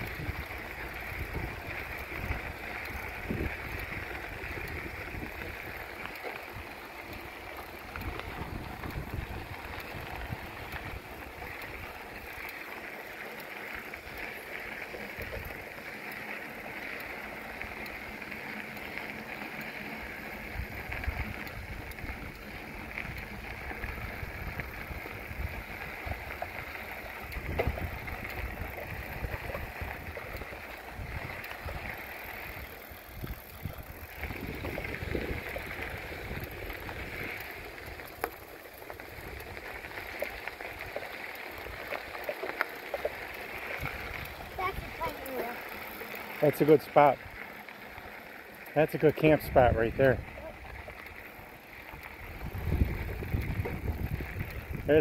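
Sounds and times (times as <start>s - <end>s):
wind buffeting microphone: 0.0s - 12.4s, 20.4s - 38.2s, 42.9s - 45.5s, 49.3s - 55.0s
bicycle tyres hissing: 0.0s - 55.0s.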